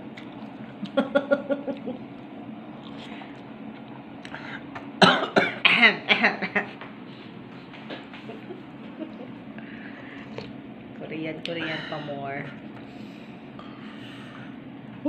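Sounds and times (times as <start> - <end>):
man coughing: 5.0 - 6.4.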